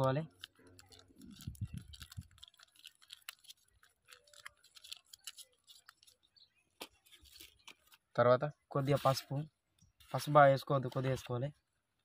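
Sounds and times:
plastic sachets crinkling: 0:00.0 - 0:08.1.

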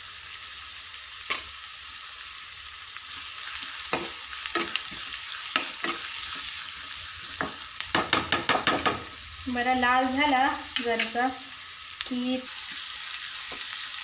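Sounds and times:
onion sizzling in hot oil: 0:00.0 - 0:14.0
metal spoon knocking against pan: 0:07.4 - 0:09.1.

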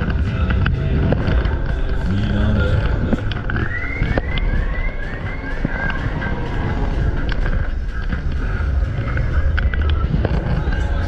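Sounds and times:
fairground music: 0:00.0 - 0:11.0
low rumble: 0:00.0 - 0:11.0
scattered clicks: 0:00.0 - 0:11.0
rising and falling chirps: 0:02.5 - 0:07.2.

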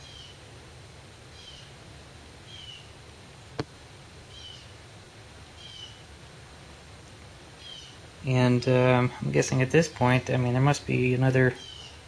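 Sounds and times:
bird chirping: 0:00.0 - 0:00.4, 0:01.3 - 0:01.8, 0:02.5 - 0:02.9, 0:04.3 - 0:04.8, 0:05.6 - 0:06.0, 0:07.6 - 0:08.0, 0:11.6 - 0:12.0.

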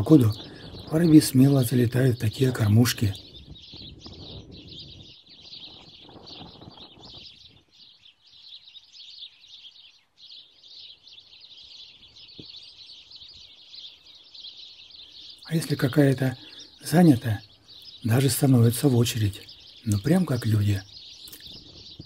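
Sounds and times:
wind rumble on microphone: 0:00.0 - 0:08.0, 0:21.3 - 0:22.0
sparrows chirping: 0:00.0 - 0:22.0.

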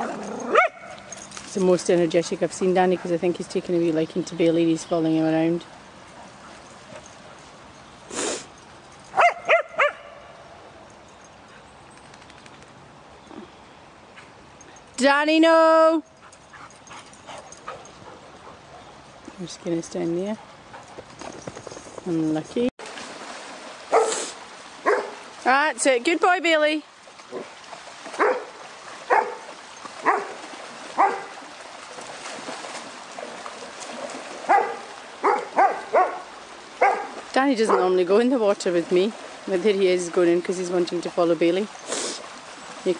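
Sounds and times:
dog barking: 0:00.5 - 0:00.9, 0:09.2 - 0:10.2, 0:23.9 - 0:24.2, 0:24.8 - 0:25.2, 0:28.2 - 0:28.5, 0:29.1 - 0:29.4, 0:30.0 - 0:30.4, 0:31.0 - 0:31.3, 0:34.5 - 0:37.9
shallow river rushing: 0:22.8 - 0:42.9.

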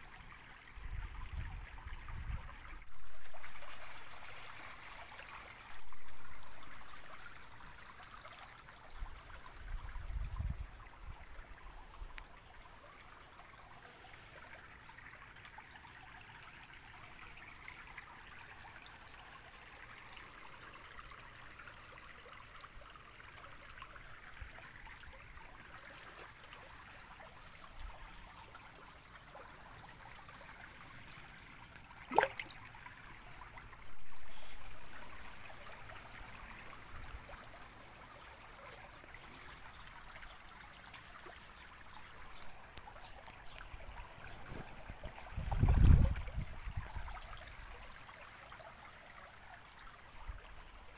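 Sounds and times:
stream trickling over stones: 0:00.0 - 0:50.9
wind rumble on microphone: 0:00.8 - 0:02.8, 0:09.6 - 0:11.4, 0:44.4 - 0:47.2.

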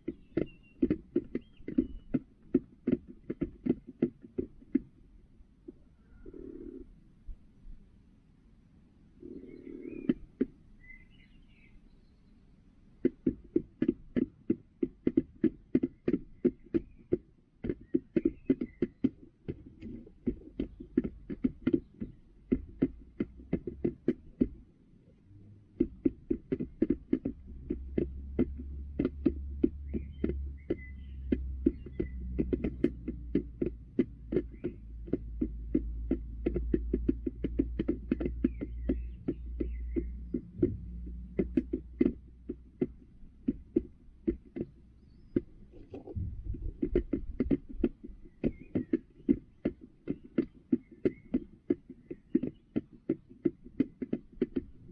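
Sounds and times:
hen pecking plastic tray: 0:00.0 - 0:06.9, 0:09.2 - 0:11.7, 0:12.9 - 0:54.9
hen soft calls: 0:05.9 - 0:06.9, 0:09.2 - 0:10.2
low hum: 0:27.7 - 0:43.2, 0:45.7 - 0:47.4.

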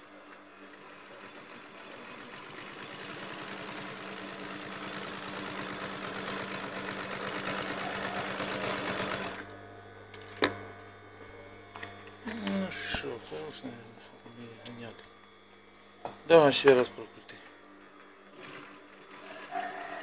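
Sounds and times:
sewing machine stitching: 0:00.7 - 0:09.4, 0:18.3 - 0:20.0.

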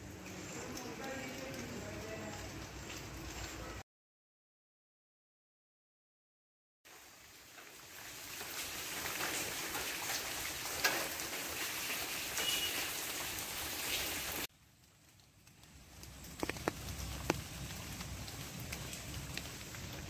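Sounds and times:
rain falling on leaves: 0:00.0 - 0:03.8, 0:06.9 - 0:20.0
drops striking leaves: 0:08.3 - 0:20.0.

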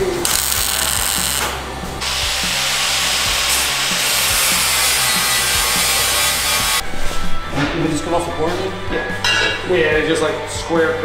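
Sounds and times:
welder crackling hiss: 0:00.0 - 0:06.8
hand grinder on steel: 0:00.2 - 0:06.8.

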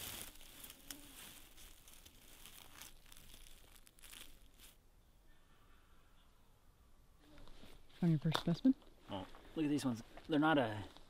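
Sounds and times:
dry grass rustling and crackling: 0:00.0 - 0:04.8.

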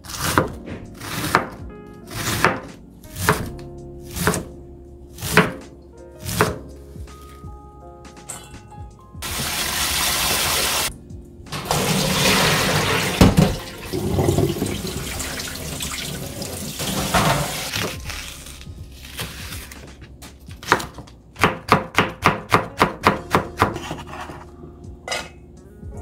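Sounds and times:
knife chopping on cutting board: 0:00.0 - 0:04.5, 0:05.2 - 0:06.7, 0:16.9 - 0:18.2, 0:20.6 - 0:24.4
tap water splashing in sink: 0:11.6 - 0:17.7.

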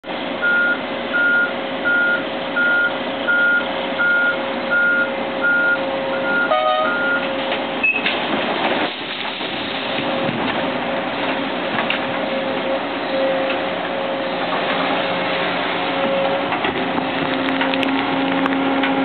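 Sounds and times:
diesel engine running: 0:00.0 - 0:19.0
excavator travel alarm beeping: 0:00.4 - 0:08.1.

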